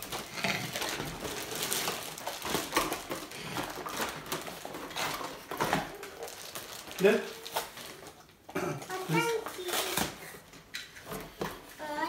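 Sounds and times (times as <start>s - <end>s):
plastic bags crinkling: 0.0s - 10.4s.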